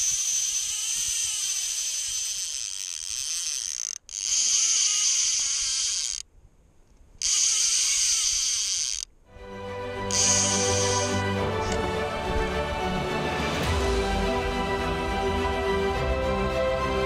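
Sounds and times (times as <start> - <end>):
fishing reel buzzing: 0.0 - 6.3, 7.2 - 9.2, 10.1 - 11.2.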